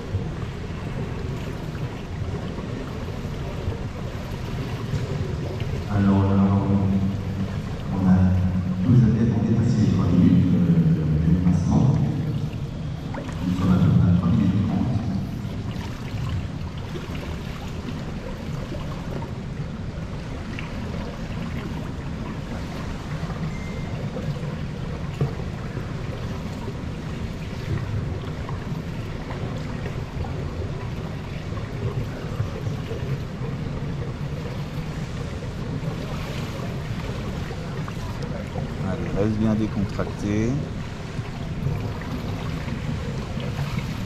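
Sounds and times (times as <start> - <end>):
steady low rumble: 0.0 - 17.2
water lapping against pool edge: 0.0 - 44.0.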